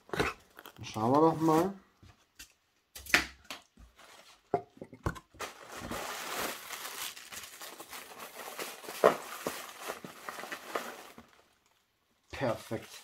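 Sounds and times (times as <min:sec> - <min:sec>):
packing material crinkling: 0:00.4 - 0:01.8, 0:05.4 - 0:13.0.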